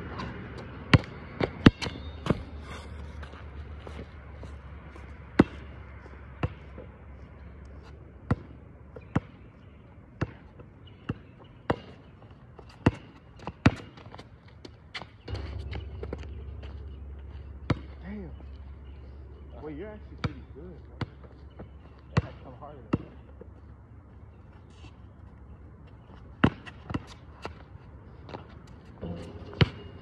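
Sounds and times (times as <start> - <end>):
basketball bouncing on hard court: 6.4 - 6.7, 10.2 - 11.9, 17.7 - 18.0, 20.2 - 23.2, 26.4 - 27.6.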